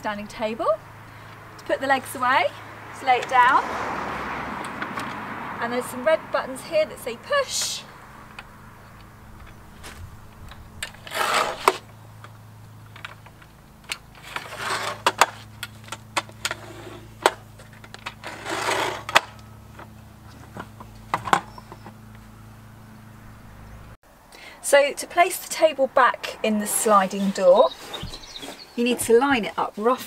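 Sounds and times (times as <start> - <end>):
rattling scrapes: 7.4 - 22.4.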